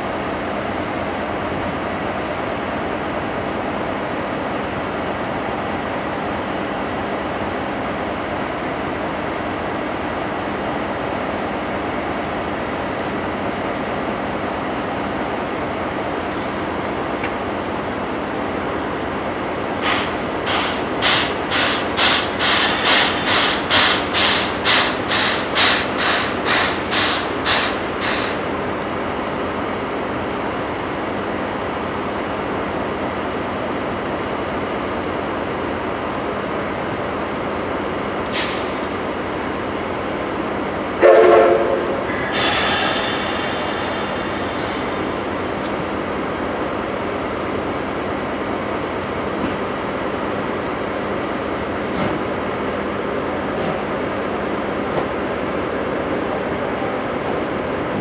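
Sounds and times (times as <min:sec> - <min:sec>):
steam hissing: 0:19.8 - 0:28.5, 0:38.3 - 0:39.2, 0:42.1 - 0:46.3
steam locomotive exhaust chuffs: 0:19.8 - 0:28.5, 0:41.0 - 0:46.4
steam whistle blast: 0:41.0 - 0:44.0.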